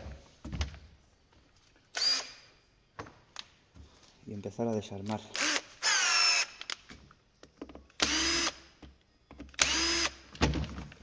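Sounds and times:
power drill whine: 0:09.6 - 0:10.2.

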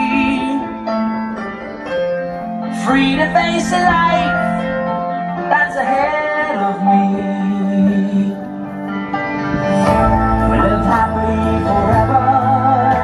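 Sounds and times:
soundtrack music with singing: 0:00.0 - 0:13.0
deep bass: 0:09.3 - 0:13.0.

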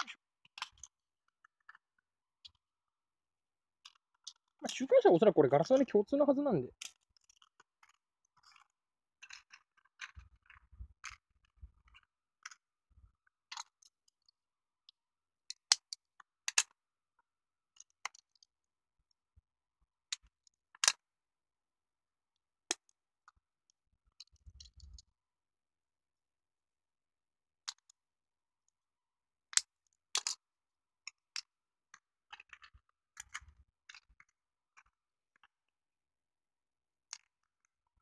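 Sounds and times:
small plastic clicks and snaps: 0:00.0 - 0:02.6, 0:03.8 - 0:04.8, 0:06.7 - 0:16.8, 0:17.7 - 0:19.2, 0:20.1 - 0:21.0, 0:22.7 - 0:23.4, 0:24.1 - 0:25.1, 0:27.6 - 0:28.0, 0:29.5 - 0:35.6, 0:37.0 - 0:37.7.

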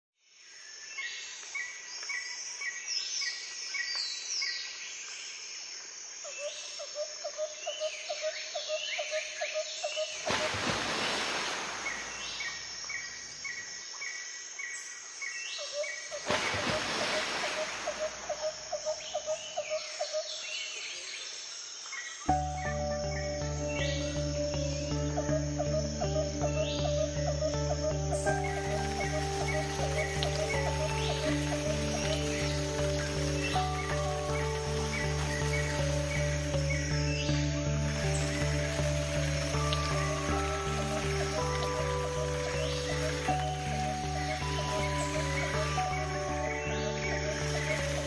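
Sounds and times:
small birds chirping: 0:06.3 - 0:48.0
low pulsed bird notes: 0:15.6 - 0:20.8, 0:22.2 - 0:48.0.

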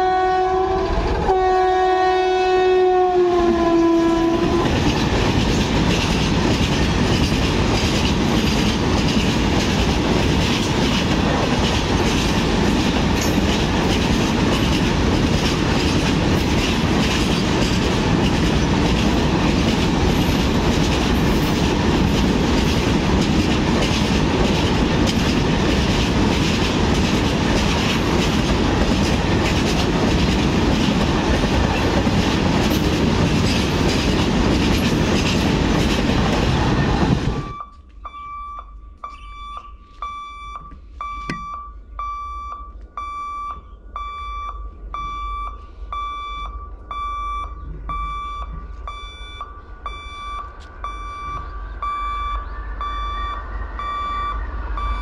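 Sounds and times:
train horn: 0:00.0 - 0:04.8
train rumbling past: 0:00.0 - 0:37.6, 0:43.9 - 0:55.0
wheels clattering over rail joints: 0:04.4 - 0:37.4.

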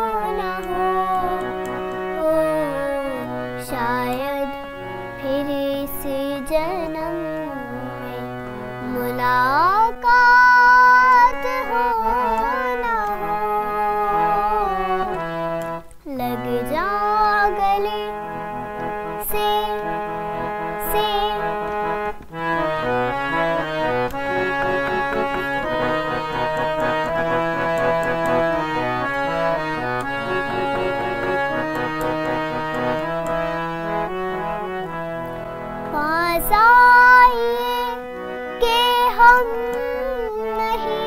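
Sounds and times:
girl singing: 0:00.0 - 0:15.2, 0:16.0 - 0:22.0, 0:35.9 - 0:41.0
harmonium playing: 0:00.0 - 0:41.0.

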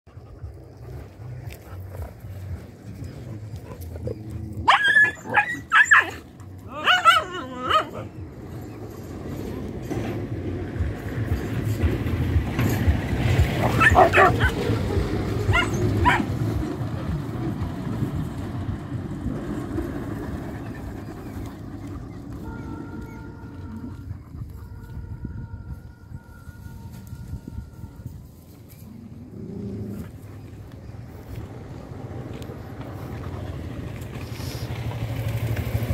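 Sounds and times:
dogs barking and yelping: 0:00.1 - 0:10.2, 0:10.9 - 0:17.6, 0:19.2 - 0:25.1
motorcycle engine approaching: 0:00.1 - 0:35.9.

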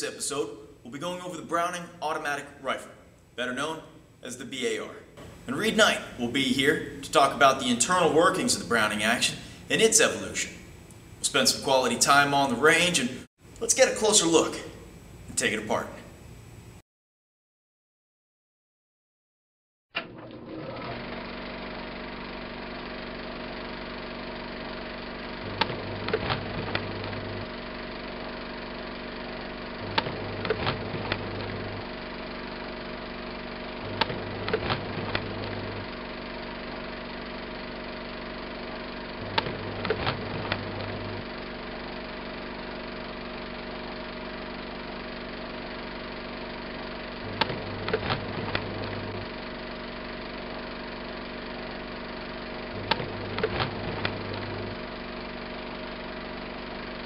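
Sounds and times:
movie projector running: 0:20.0 - 0:57.0
projector clicking bursts: 0:39.1 - 0:41.2, 0:47.2 - 0:49.2, 0:52.8 - 0:54.7.

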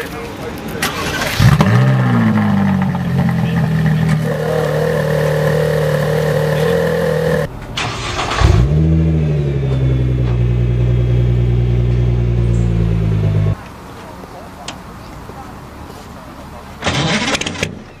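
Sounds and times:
car engine starting and revving: 0:00.8 - 0:13.6
car engine idling: 0:01.0 - 0:13.6.

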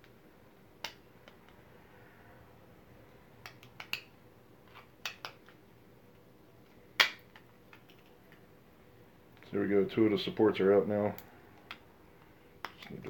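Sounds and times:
plastic clicks and snaps: 0:03.4 - 0:04.1.

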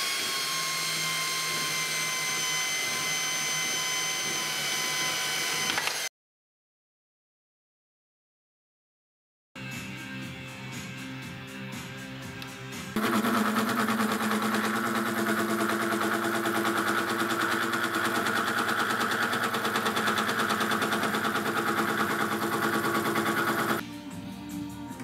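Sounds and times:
milling machine whine: 0:00.0 - 0:06.0, 0:13.0 - 0:23.8.

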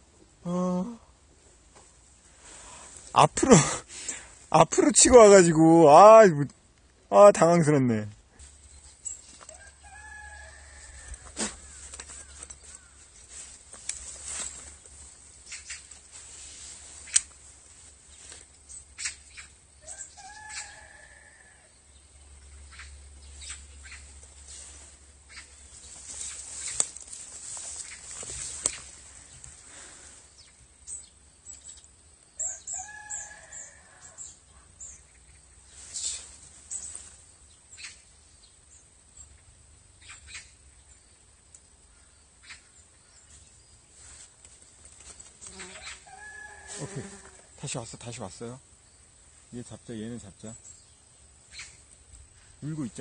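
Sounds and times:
soft clicks and rustles: 0:11.0 - 0:19.1, 0:24.1 - 0:29.6, 0:44.0 - 0:45.6.

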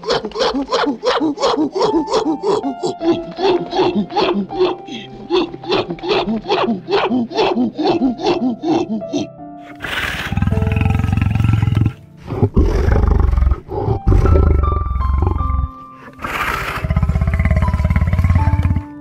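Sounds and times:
melodic background music: 0:00.0 - 0:19.0
animal roaring: 0:09.7 - 0:19.0.

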